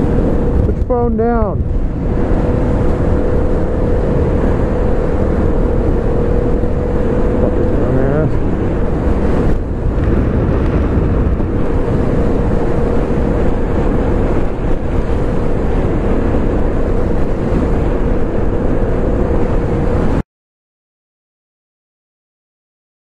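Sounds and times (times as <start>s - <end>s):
motorcycle engine running: 0.0s - 20.2s
wind rush on microphone: 0.0s - 20.2s.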